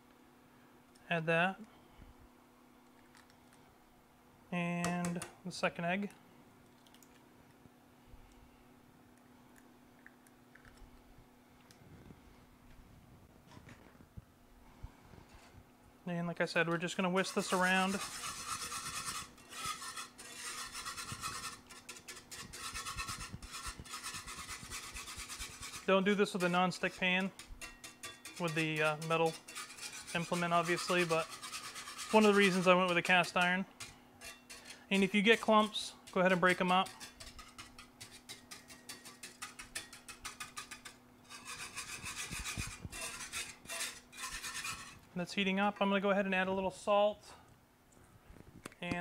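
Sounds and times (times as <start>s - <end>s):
whisk scraping skillet: 16.4s - 45.1s.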